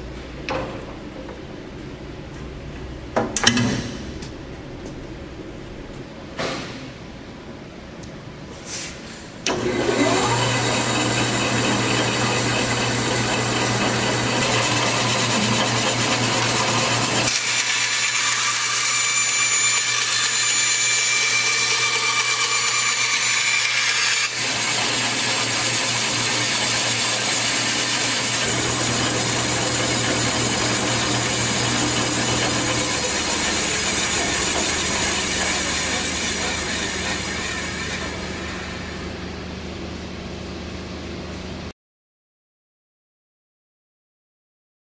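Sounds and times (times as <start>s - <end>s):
band saw humming: 9.5s - 40.0s.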